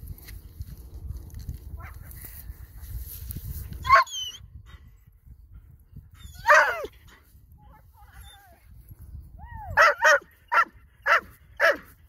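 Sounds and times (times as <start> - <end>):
dog yelping bark: 3.8 - 4.4, 6.3 - 6.9, 9.8 - 11.9.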